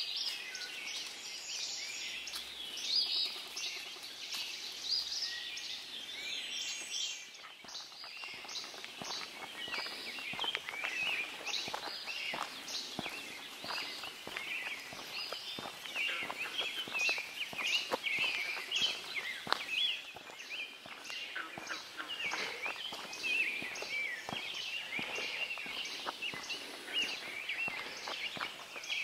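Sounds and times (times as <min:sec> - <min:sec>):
songbirds singing: 0:00.0 - 0:29.0
footsteps on gravel: 0:06.8 - 0:29.0.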